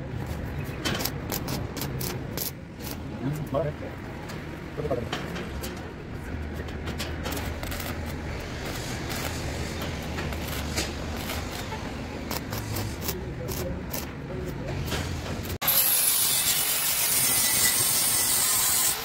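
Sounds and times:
arc welder crackling: 0.9 - 3.1, 7.0 - 14.5.

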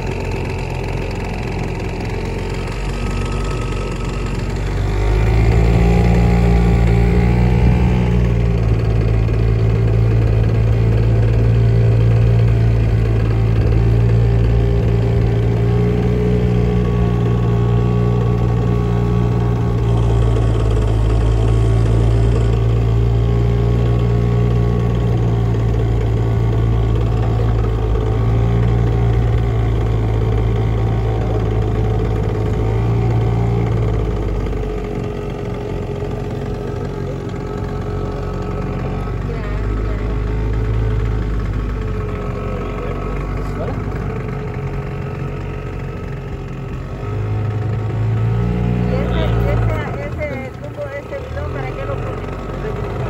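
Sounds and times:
outboard motor running: 0.0 - 53.0.

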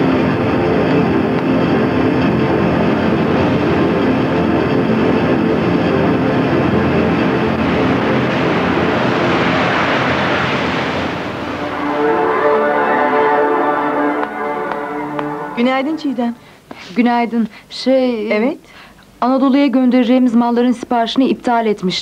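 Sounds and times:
road noise: 1.1 - 16.7.

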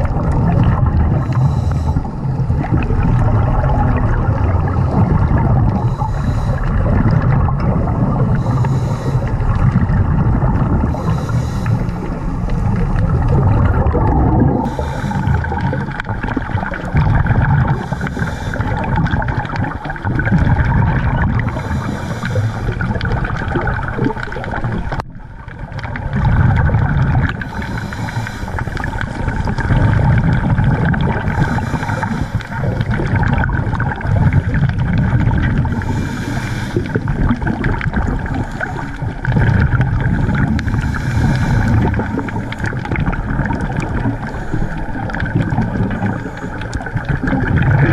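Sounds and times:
rumbling exhaust bubbles underwater: 0.0 - 47.9
regulator hissing inhalations: 5.8 - 6.8, 8.4 - 9.3, 10.9 - 12.6, 14.6 - 15.6, 17.8 - 18.8, 21.4 - 22.8, 27.5 - 28.8, 31.3 - 32.7, 35.8 - 37.0, 40.6 - 42.5.

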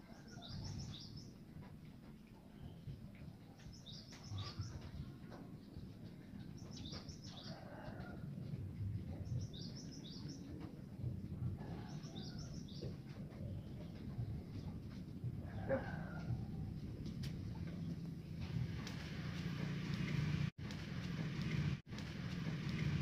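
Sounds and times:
songbird singing: 0.0 - 8.2, 9.0 - 11.0, 11.6 - 14.8
steady low rumble: 8.1 - 23.0.

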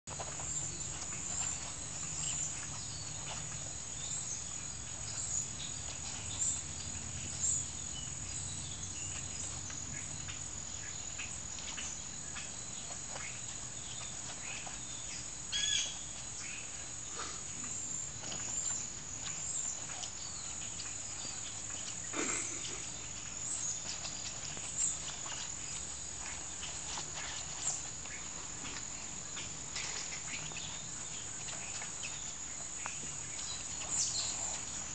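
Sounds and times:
dogs scuffling: 0.1 - 17.0, 17.6 - 34.9
insects chirring: 0.1 - 34.9.

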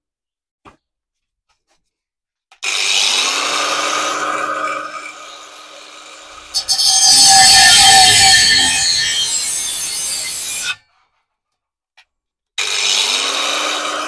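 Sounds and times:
angle grinder cutting metal pipe: 4.6 - 10.8.

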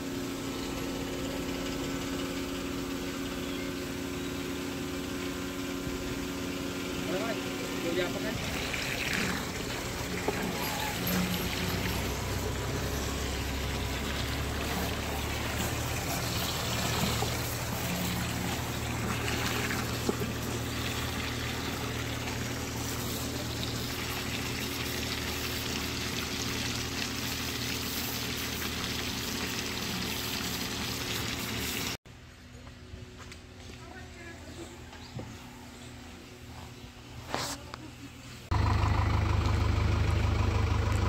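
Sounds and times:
low motor hum: 0.0 - 41.0
water spraying onto vehicle: 4.7 - 32.0.

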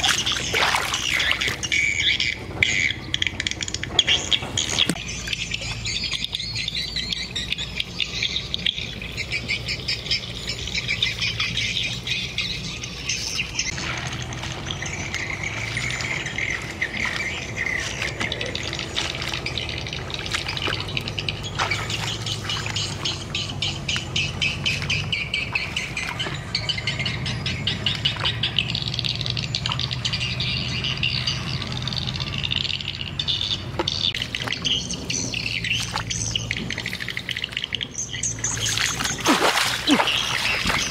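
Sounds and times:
birds chirping and squawking: 0.0 - 40.9.

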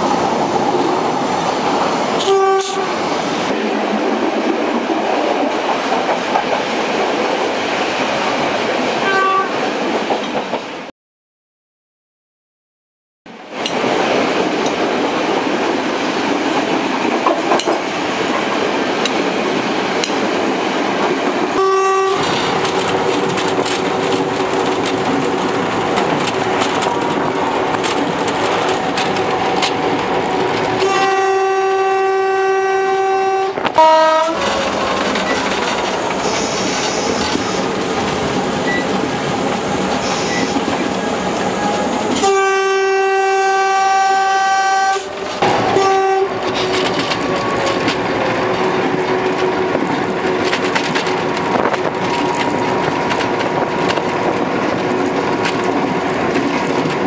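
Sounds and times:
locomotive running on rails: 0.0 - 10.9, 13.3 - 57.0
diesel locomotive horn: 2.2 - 3.0, 9.0 - 9.6, 21.5 - 22.5, 30.7 - 34.8, 40.0 - 49.8.

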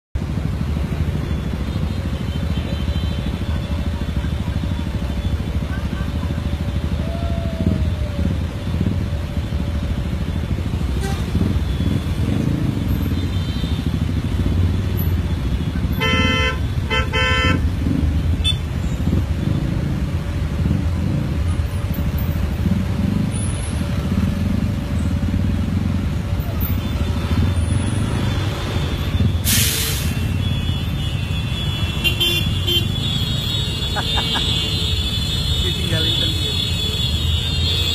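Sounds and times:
idling traffic rumble: 0.2 - 37.9
vehicle horn honks: 10.9 - 12.0, 15.8 - 17.7, 29.2 - 37.9.

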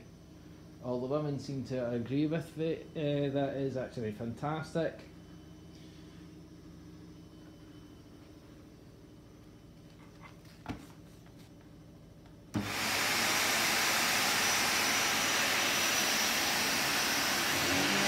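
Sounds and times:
upright vacuum cleaner running: 12.5 - 18.0.

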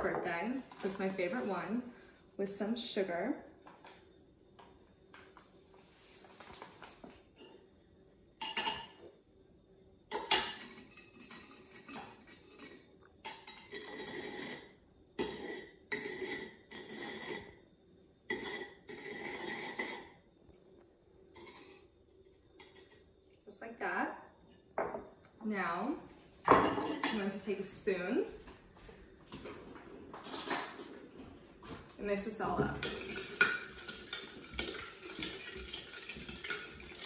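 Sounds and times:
glass scraping on sugar: 13.5 - 17.6, 18.3 - 20.2.

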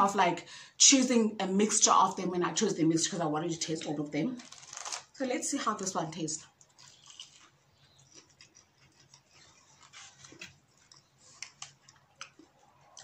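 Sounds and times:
faint chewing: 6.4 - 13.0.

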